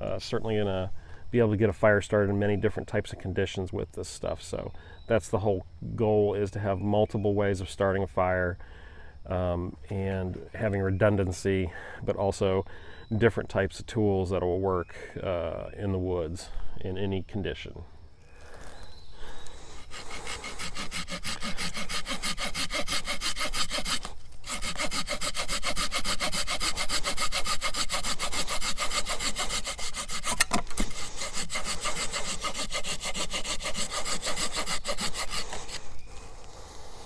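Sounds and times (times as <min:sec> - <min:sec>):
hand saw cutting wood: 0:19.8 - 0:36.0.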